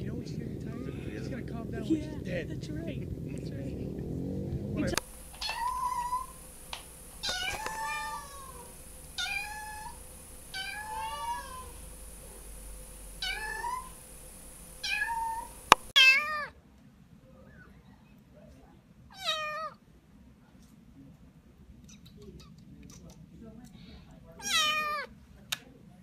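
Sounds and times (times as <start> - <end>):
kitten meowing: 4.8 - 6.4, 7.2 - 11.8, 13.2 - 14.0, 14.8 - 16.5, 24.4 - 25.1
click: 6.7 - 7.8.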